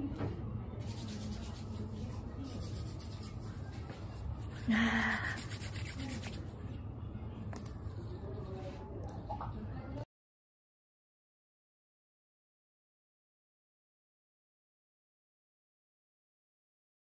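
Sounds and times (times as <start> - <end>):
soapy hands rubbing: 0.8 - 6.5.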